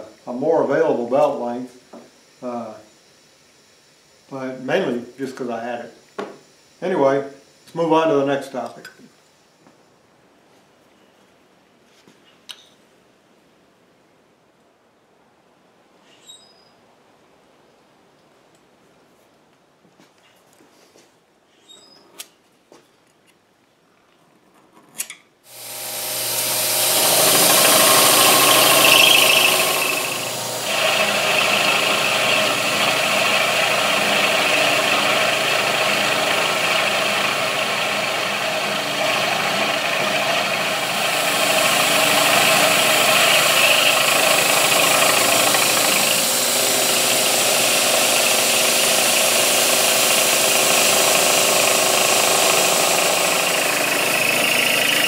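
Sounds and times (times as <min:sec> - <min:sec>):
high hiss: 0:00.0 - 0:09.6, 0:25.5 - 0:55.0
milling machine drone: 0:25.5 - 0:55.0.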